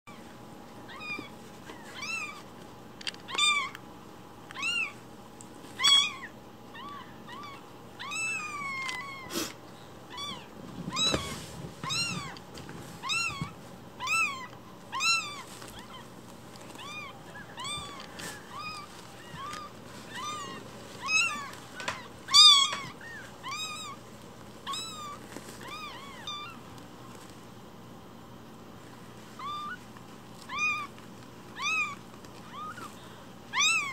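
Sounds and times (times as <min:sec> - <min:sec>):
kittens mewing: 0:03.2 - 0:03.8, 0:04.5 - 0:05.0, 0:05.8 - 0:26.7, 0:29.4 - 0:33.9.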